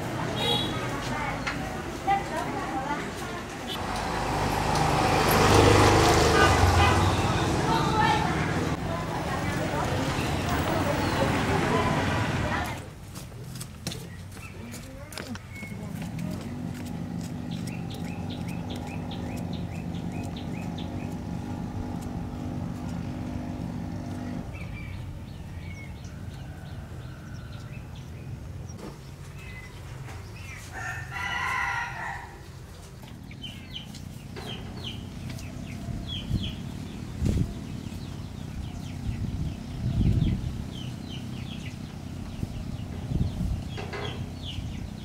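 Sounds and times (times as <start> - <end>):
rooster crowing: 26.1 - 28.0, 30.7 - 32.5.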